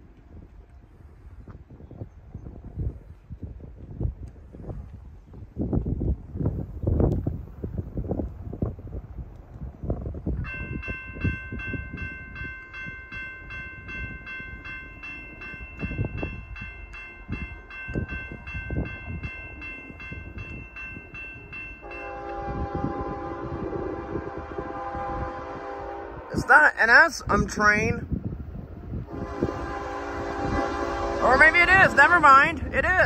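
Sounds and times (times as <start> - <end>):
wind buffeting microphone: 0.0 - 33.0
railroad crossing bell ringing: 10.4 - 26.1
locomotive air horn: 21.8 - 26.4, 29.1 - 32.5.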